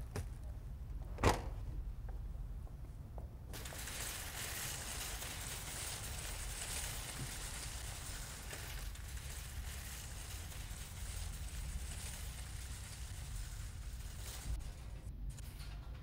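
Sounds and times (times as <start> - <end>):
steady hiss: 3.5 - 15.9.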